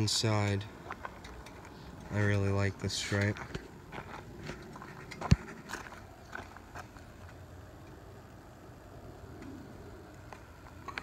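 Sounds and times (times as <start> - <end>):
low steady background: 0.0 - 11.0
footsteps on gravel: 0.8 - 7.4.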